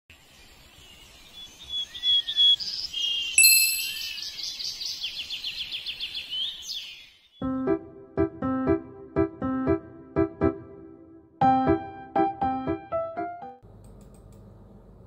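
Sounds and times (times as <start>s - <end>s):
small birds chirping: 0.1s - 7.4s
bell-like ding: 3.4s - 4.2s.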